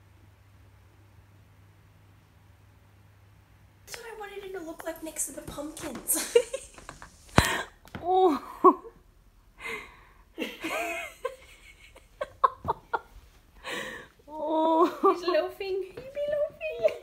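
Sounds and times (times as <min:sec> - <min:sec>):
person laughing: 0:06.1 - 0:09.0, 0:10.4 - 0:15.4
wheezy breaths: 0:09.6 - 0:10.3, 0:13.6 - 0:14.2.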